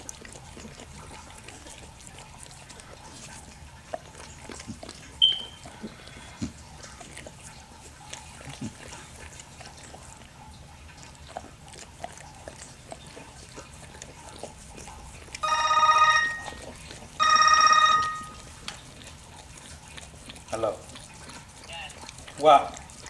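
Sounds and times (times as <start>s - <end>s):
dog licking and smacking: 0.0s - 23.0s
phone ringtone: 15.4s - 16.6s, 17.2s - 18.5s.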